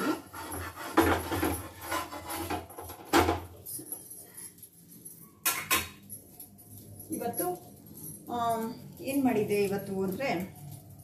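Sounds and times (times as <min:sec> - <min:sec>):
metal turner scraping a griddle: 0:00.0 - 0:03.4.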